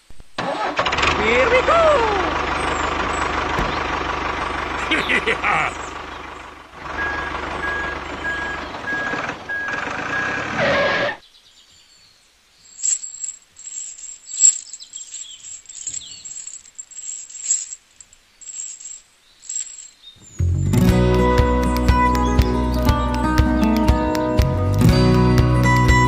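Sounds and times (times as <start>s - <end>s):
metal chain clinking: 12.7s - 20.2s.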